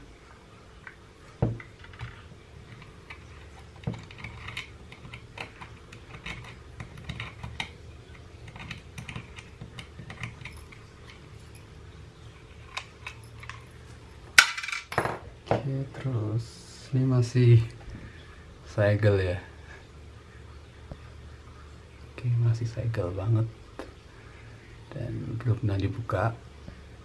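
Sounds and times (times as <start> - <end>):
screwdriver scraping plastic casing: 2.8 - 7.8.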